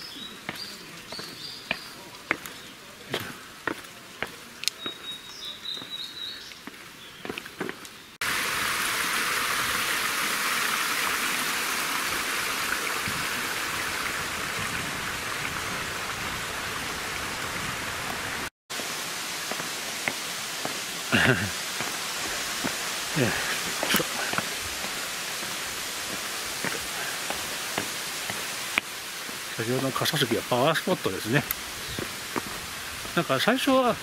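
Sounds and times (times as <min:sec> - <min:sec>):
mountain stream rushing: 0:00.0 - 0:05.9, 0:08.2 - 0:34.0
footsteps on stone steps: 0:00.0 - 0:08.0, 0:19.0 - 0:29.5, 0:31.4 - 0:33.8
bird call: 0:04.7 - 0:06.5.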